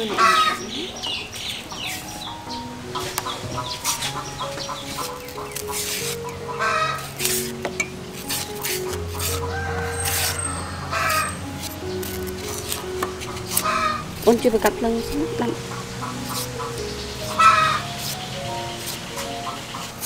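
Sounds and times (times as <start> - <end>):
hens clucking: 0.0 - 20.0
soft background music: 0.0 - 20.0
knife scraping banana peel: 4.9 - 6.3, 8.2 - 10.5, 18.0 - 20.0.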